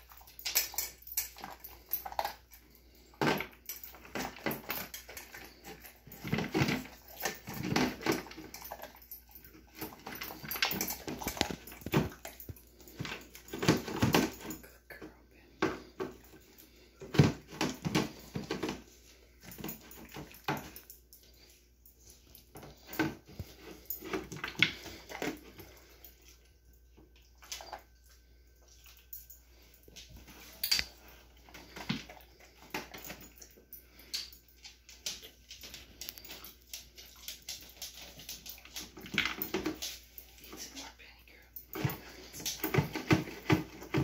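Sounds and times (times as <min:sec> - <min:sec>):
dog chewing and licking: 0:00.0 - 0:14.9, 0:15.5 - 0:41.0.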